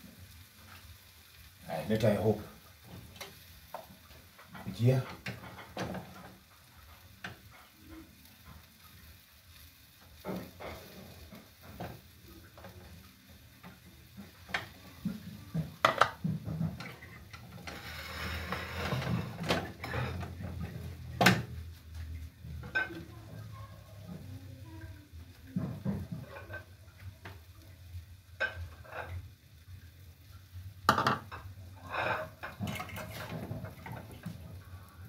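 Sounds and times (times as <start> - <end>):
wooden spoon scraping pot: 14.2 - 21.1, 31.8 - 34.4.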